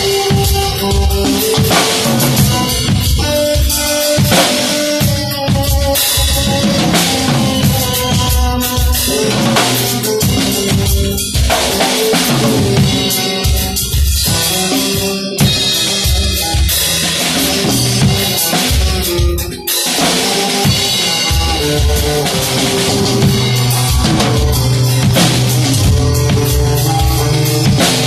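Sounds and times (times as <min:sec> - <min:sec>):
drum kit groove: 0:00.0 - 0:28.0
recorded band music: 0:00.0 - 0:28.0.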